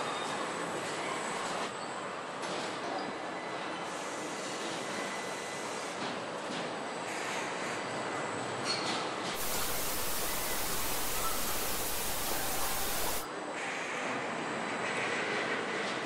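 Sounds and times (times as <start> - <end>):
assembly line machinery hiss and hum: 9.4 - 13.3.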